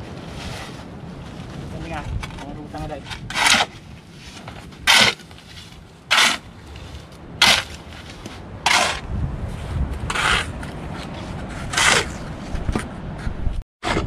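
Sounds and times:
trowel scraping wet cement: 3.1s - 3.7s, 4.3s - 9.0s, 10.1s - 12.2s
low rumble: 3.8s - 13.6s.

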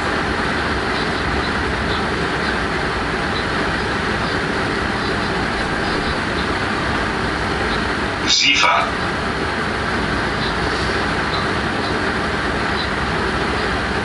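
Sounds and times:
locomotive wheels rolling on rails: 0.0s - 14.0s.

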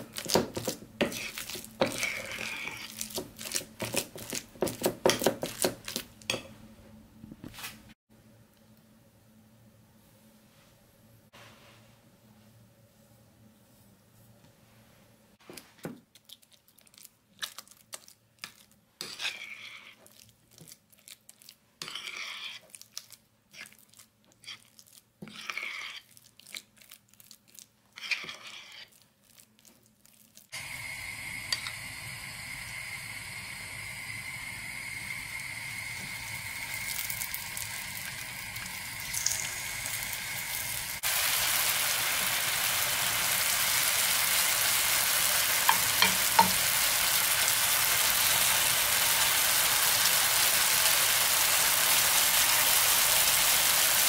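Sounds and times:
spoon stirring batter in bowl: 0.0s - 6.5s, 17.4s - 30.4s
oil sizzling in frying pan: 30.6s - 54.0s.

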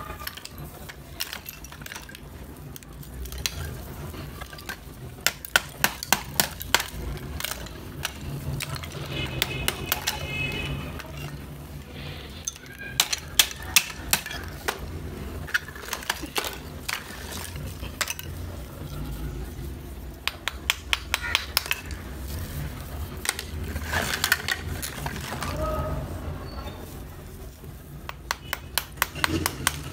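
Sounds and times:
clay slabs clinking and cracking: 0.0s - 11.6s, 12.4s - 19.1s, 20.2s - 22.4s, 23.0s - 25.6s
small hammer tapping clay: 20.2s - 21.9s, 28.0s - 29.9s.

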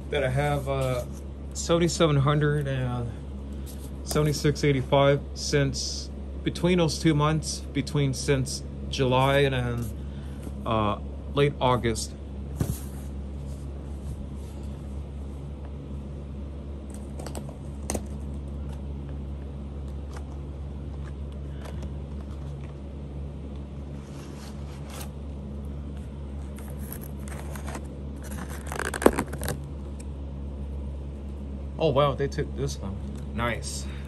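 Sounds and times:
steady low hum: 0.0s - 34.0s
plastic crinkling and scraping: 26.4s - 29.6s.

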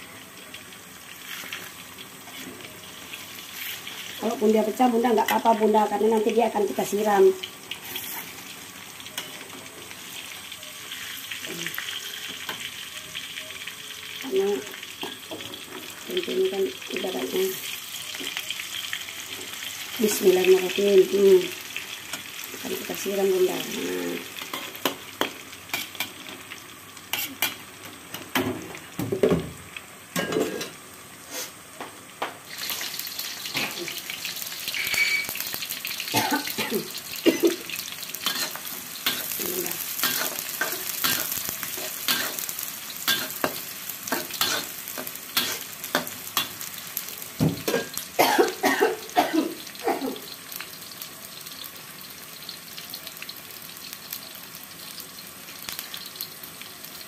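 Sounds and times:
hot oil sizzling in a wok: 0.0s - 57.0s
metal spatula scraping a pan: 7.8s - 8.4s, 34.7s - 35.3s, 38.2s - 39.4s, 45.4s - 46.5s.

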